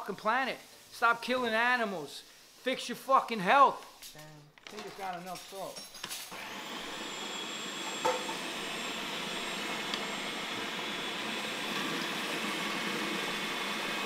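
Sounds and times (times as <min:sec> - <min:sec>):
countertop blender whirring: 0:06.3 - 0:14.0.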